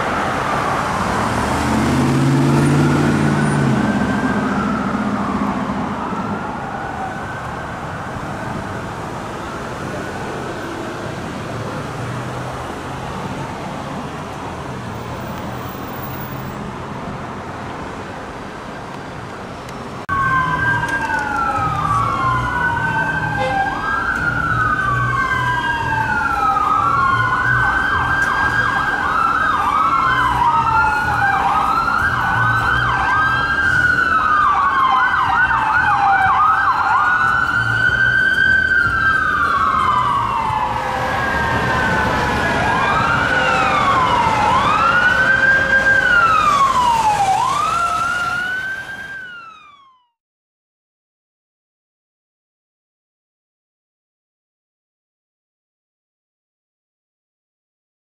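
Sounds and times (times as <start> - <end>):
siren wailing and yelping: 20.1 - 50.2
air horn blasts: 23.3 - 23.7.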